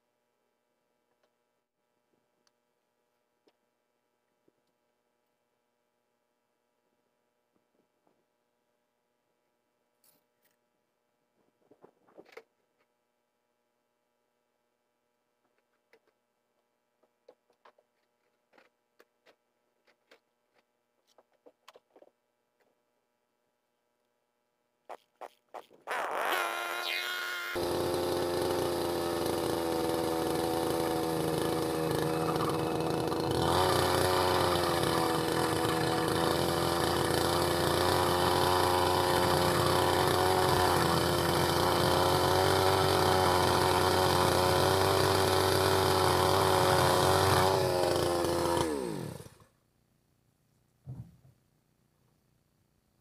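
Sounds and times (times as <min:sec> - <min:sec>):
power tool motor whining: 0:26.0 - 0:49.4.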